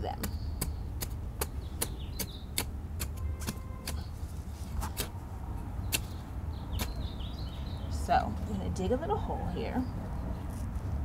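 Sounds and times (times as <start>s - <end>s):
trowel scraping dry soil: 2.2s - 5.2s.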